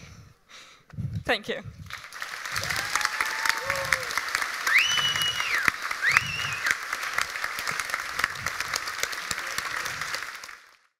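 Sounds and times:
audience applauding: 0:01.9 - 0:10.9
whistles: 0:04.6 - 0:06.8.

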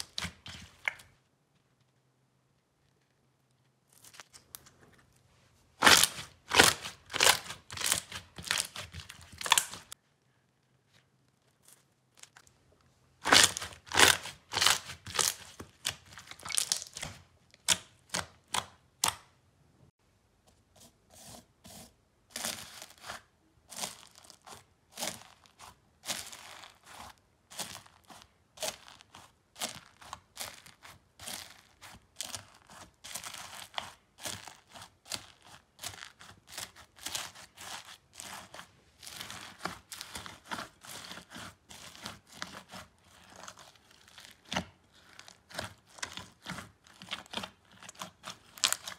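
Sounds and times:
foam bead slime kneaded in bowl: 0:00.0 - 0:19.4, 0:20.1 - 0:48.9
slime crackling and popping: 0:05.8 - 0:10.0, 0:13.2 - 0:19.2, 0:22.3 - 0:48.9.

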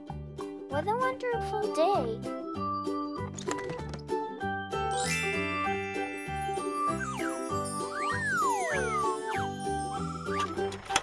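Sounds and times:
bouncy children's music: 0:00.0 - 0:11.0
sliding whistle tones: 0:06.6 - 0:10.8.

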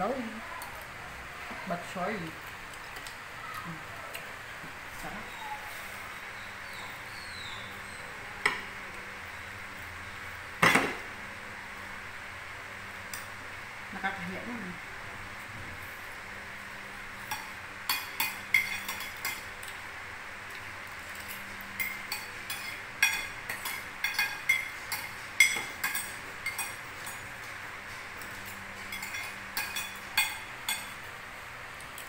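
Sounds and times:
cutlery clinking on a plate: 0:10.6 - 0:11.0, 0:17.3 - 0:19.8, 0:21.0 - 0:31.0.

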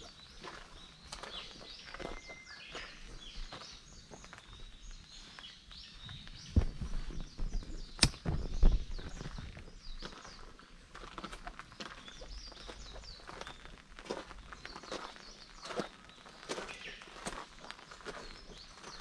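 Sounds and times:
footsteps on gravel: 0:00.0 - 0:19.0
small birds chirping: 0:00.0 - 0:19.0
deep thumps: 0:06.5 - 0:09.5.

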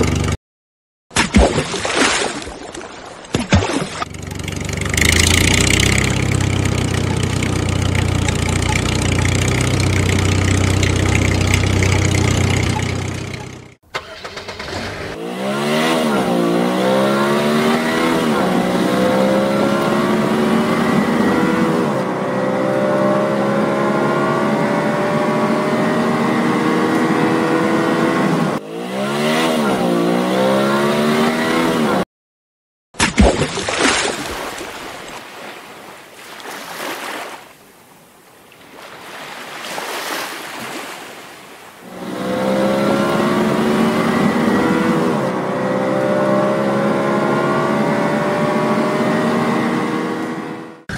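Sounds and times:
engine running at low pitch: 0:00.0 - 0:00.4, 0:04.0 - 0:13.8
car engine revving through gears: 0:04.1 - 0:32.0, 0:41.8 - 0:50.9.

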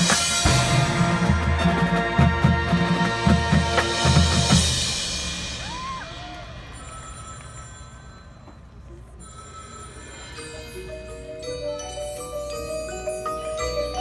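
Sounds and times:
drum hit: 0:00.0 - 0:06.0
mallet keyboard notes: 0:06.5 - 0:14.0.

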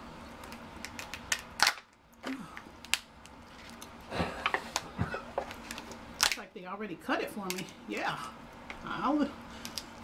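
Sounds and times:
crab shell cracking: 0:00.4 - 0:04.0, 0:05.4 - 0:06.5, 0:09.6 - 0:10.0.

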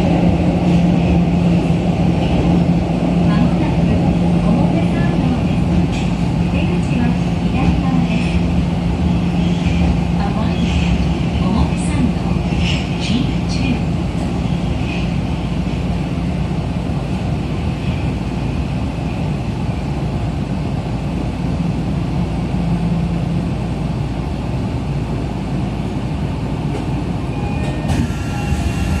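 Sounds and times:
subway wheels rumbling on rail: 0:00.0 - 0:29.0.

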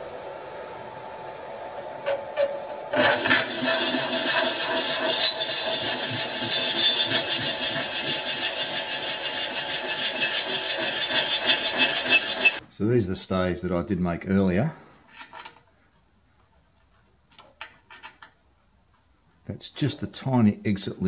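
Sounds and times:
milling machine spindle humming: 0:00.0 - 0:12.6
drill squealing cutting metal: 0:02.0 - 0:12.6.

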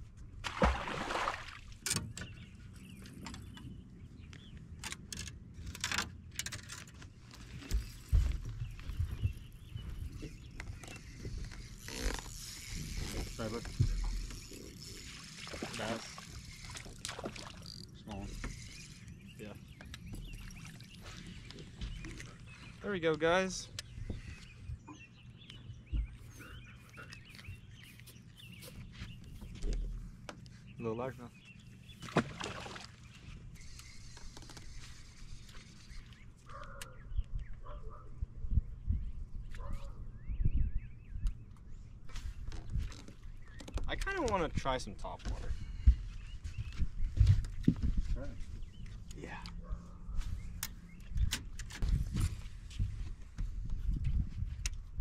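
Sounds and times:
fish splashing into water: 0:00.4 - 0:01.8, 0:32.0 - 0:33.0.

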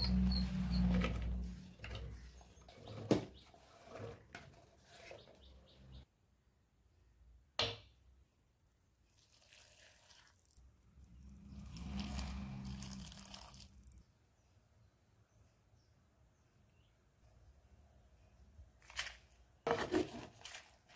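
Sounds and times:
water pouring into pot: 0:09.1 - 0:10.6, 0:11.5 - 0:14.0.

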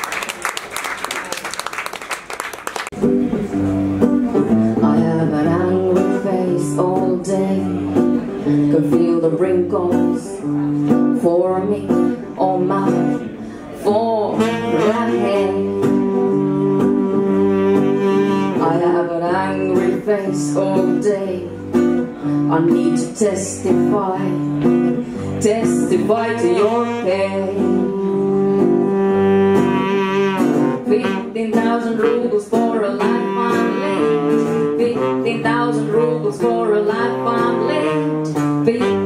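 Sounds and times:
acoustic guitar picking: 0:03.0 - 0:39.0
saxophone melody: 0:14.2 - 0:20.1, 0:23.9 - 0:39.0.

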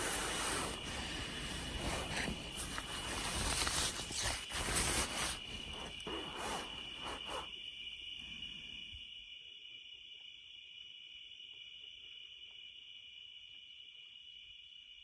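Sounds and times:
rustling noise: 0:00.0 - 0:07.6
night insects trilling: 0:00.0 - 0:15.0.

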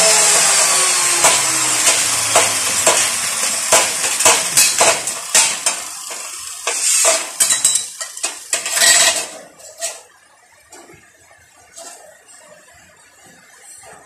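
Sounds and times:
angle grinder cutting steel: 0:00.0 - 0:07.8.

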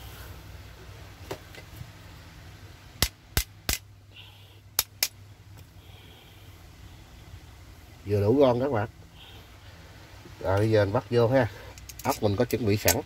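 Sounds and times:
metal parts clacking together: 0:11.7 - 0:13.0.

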